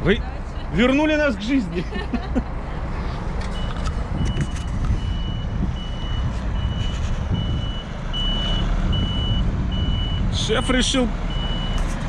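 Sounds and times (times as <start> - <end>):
truck engine low rumble: 0.0 - 12.0
truck reversing alarm beeping: 3.4 - 12.0.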